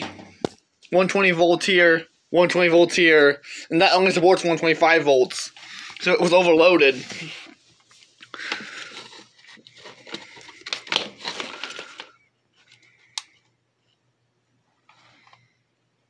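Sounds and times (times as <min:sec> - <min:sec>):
cords and plastic bag rustling: 0:05.5 - 0:13.2.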